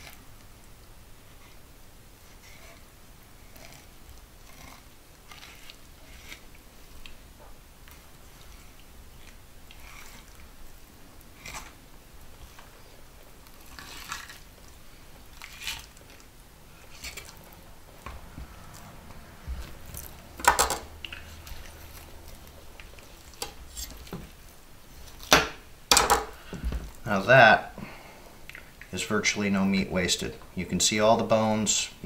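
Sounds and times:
knife scraping fish flesh: 0:03.5 - 0:06.6.

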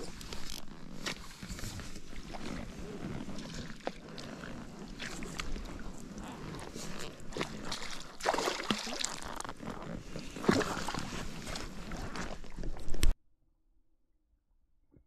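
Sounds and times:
landing net moving through water: 0:00.0 - 0:13.2
fish splashing in water: 0:07.3 - 0:09.5.

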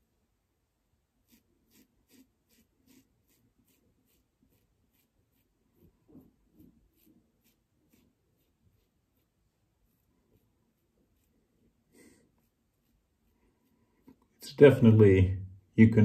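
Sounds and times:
razor scraping stubble: 0:01.2 - 0:11.4.

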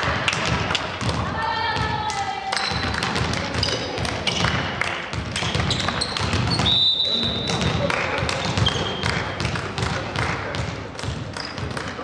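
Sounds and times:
sneakers squeaking on court floor: 0:02.6 - 0:12.0
volleyball thudding: 0:02.7 - 0:12.0.

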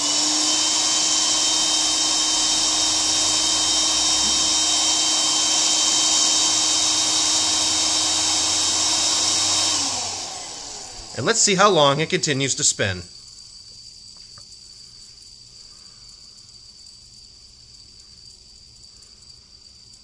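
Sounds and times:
electric air pump running: 0:00.0 - 0:12.5.

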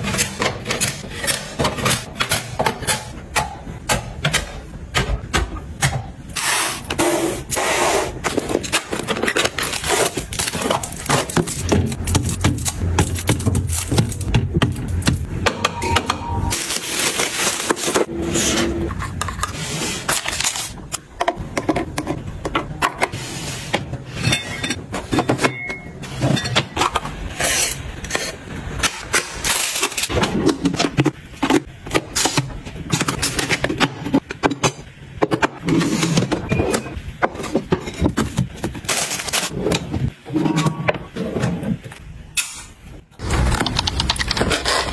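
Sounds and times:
drink cartons on glass shelf: 0:00.0 - 0:44.9
plastic dispenser opened and loaded: 0:08.1 - 0:24.2, 0:28.2 - 0:44.9.

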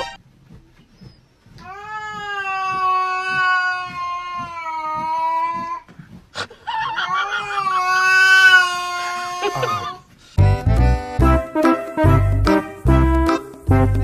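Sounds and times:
cat yowling: 0:01.7 - 0:05.8, 0:06.8 - 0:10.0.

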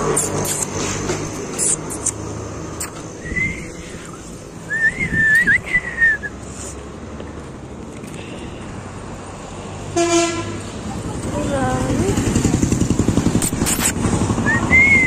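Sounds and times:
person whistling: 0:03.2 - 0:03.9, 0:04.7 - 0:06.4, 0:14.4 - 0:15.0.

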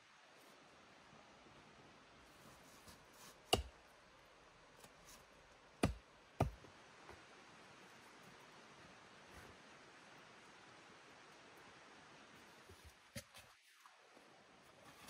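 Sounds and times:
axe striking wooden pole: 0:03.5 - 0:03.7, 0:05.8 - 0:06.6.

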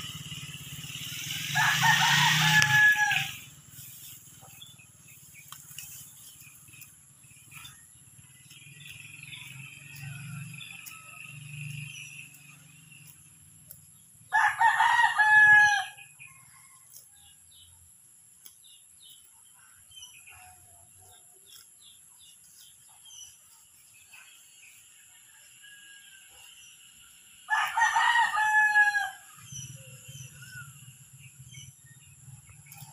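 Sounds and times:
rooster crowing: 0:01.5 - 0:03.6, 0:14.3 - 0:17.0, 0:25.2 - 0:26.6, 0:27.5 - 0:30.3.

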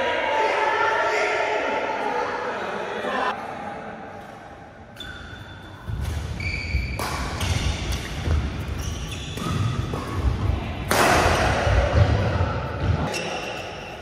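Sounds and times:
shoes squeaking on court floor: 0:04.9 - 0:10.5, 0:13.0 - 0:14.0
racket striking shuttlecock: 0:05.9 - 0:08.4, 0:09.3 - 0:11.5.

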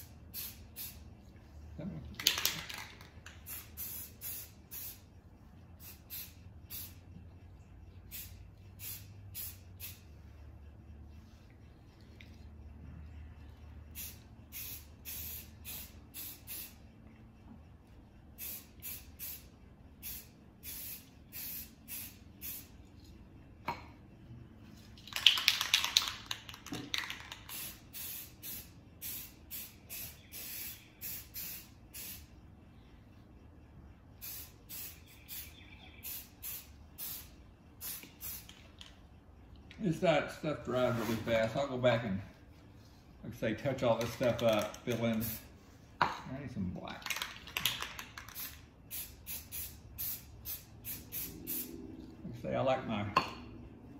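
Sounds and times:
spray can hissing: 0:00.0 - 0:01.0, 0:02.2 - 0:05.1, 0:05.8 - 0:07.0, 0:08.1 - 0:10.1, 0:13.9 - 0:16.8, 0:18.4 - 0:22.7, 0:25.1 - 0:32.3, 0:34.2 - 0:38.8, 0:44.0 - 0:45.5, 0:47.1 - 0:51.8
spray can rattling when shaken: 0:02.1 - 0:05.1, 0:05.8 - 0:07.0, 0:08.1 - 0:10.0, 0:14.0 - 0:16.8, 0:18.4 - 0:22.7, 0:24.8 - 0:32.3, 0:34.2 - 0:39.0, 0:43.8 - 0:45.5, 0:46.9 - 0:51.7.

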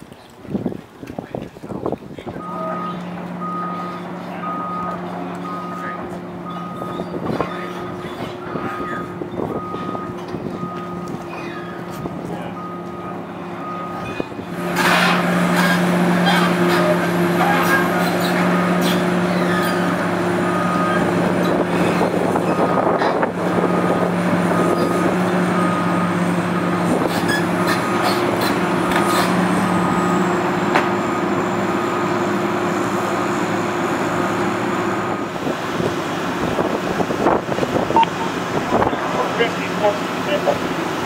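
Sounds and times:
excavator diesel engine running: 0:02.4 - 0:41.0
faint high beeps: 0:38.0 - 0:38.4.

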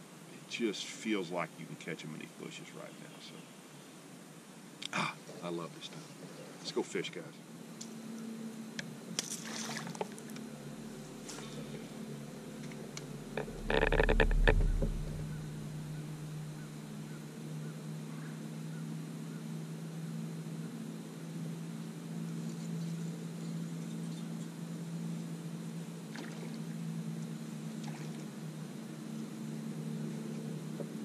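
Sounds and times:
electric trolling motor humming: 0:07.9 - 0:17.4
clattering burst with deep thump: 0:13.4 - 0:16.0.

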